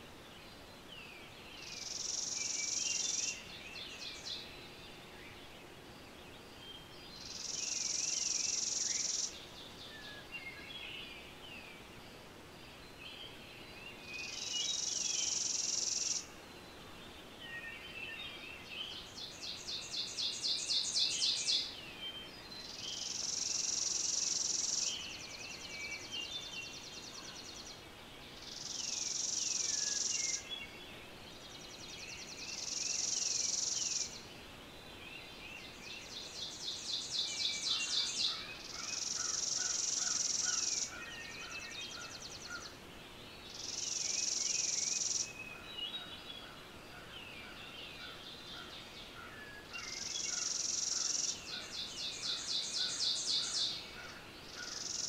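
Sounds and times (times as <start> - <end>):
high-pitched insect song: 7.2 - 9.4, 14.2 - 16.3, 23.0 - 25.2, 36.8 - 40.9, 54.6 - 55.0
small bird chirps: 35.3 - 42.8, 43.4 - 46.4, 47.0 - 55.0.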